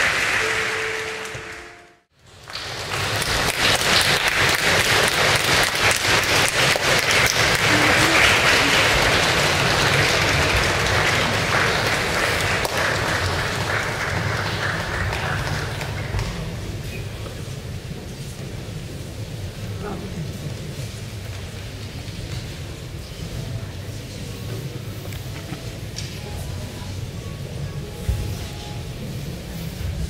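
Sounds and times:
audience applauding: 0.0 - 16.8.

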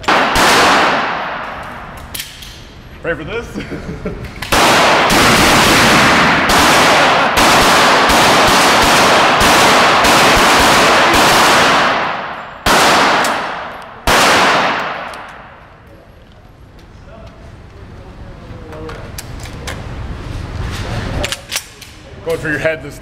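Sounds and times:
single gunshots ringing: 0.0 - 1.6, 4.5 - 15.5
shotgun blasts echoing indoors: 0.0 - 2.8, 4.4 - 15.8.

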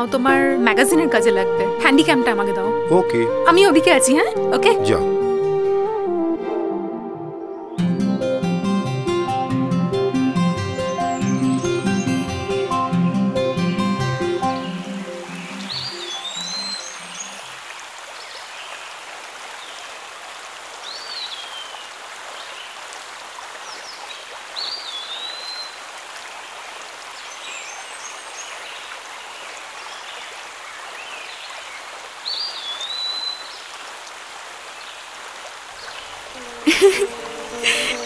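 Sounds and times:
stream rushing over rocks: 14.6 - 38.0.

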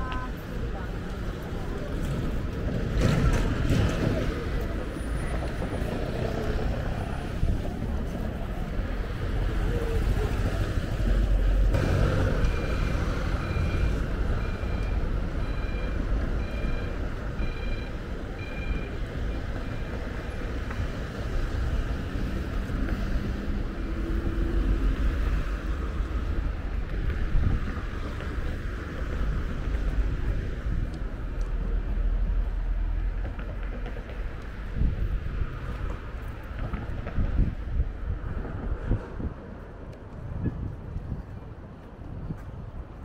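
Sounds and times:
low traffic rumble: 0.0 - 43.0
wind buffeting microphone: 21.8 - 43.0.

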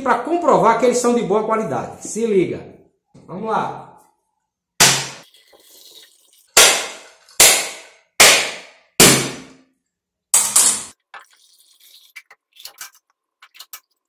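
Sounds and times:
machete striking coconut shell: 4.8 - 5.2, 6.6 - 9.5.

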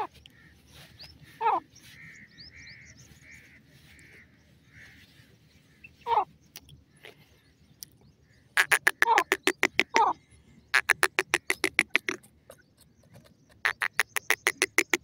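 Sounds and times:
soft bird notes: 5.8 - 10.1, 10.8 - 15.0
bird calls dropping in pitch: 8.6 - 10.1, 10.8 - 15.0
fast run of clipped bird notes: 8.6 - 10.1, 10.8 - 15.0.

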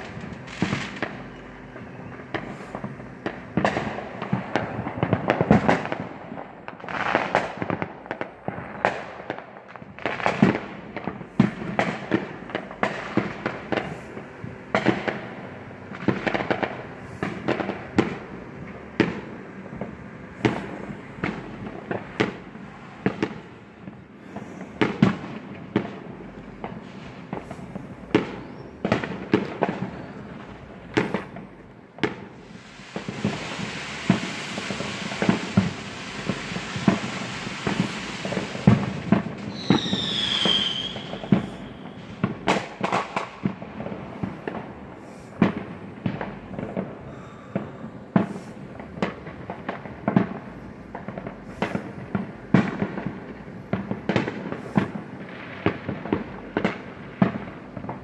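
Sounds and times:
fireworks bangs and pops: 0.0 - 58.0.

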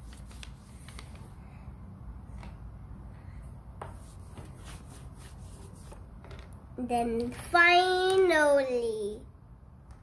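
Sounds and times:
crayon scribbling on paper: 3.9 - 6.0.

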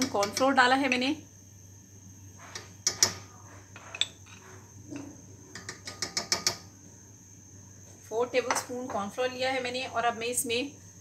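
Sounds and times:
metal spoon scraping glass bowl: 3.7 - 5.1.

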